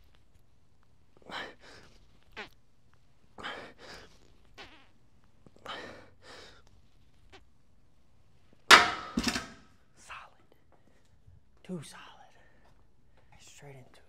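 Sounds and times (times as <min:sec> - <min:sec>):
barbell clanking onto rack: 0:08.7 - 0:09.6.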